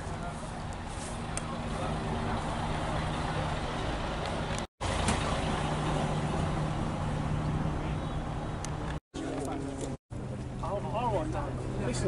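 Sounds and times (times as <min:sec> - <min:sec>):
diesel bus engine idling: 0:00.0 - 0:08.8.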